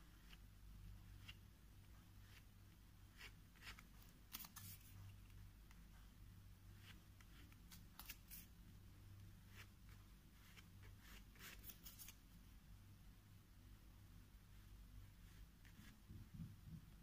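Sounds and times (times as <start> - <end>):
low steady hum: 0.0 - 17.0
card scraping paint on paper: 1.0 - 6.1, 6.7 - 8.6, 9.4 - 12.2, 15.2 - 16.1.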